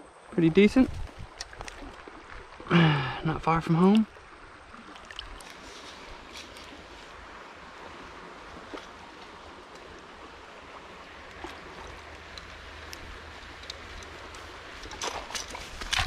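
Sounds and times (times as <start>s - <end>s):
creek running: 0.0s - 16.0s
faint ticks: 11.2s - 15.0s.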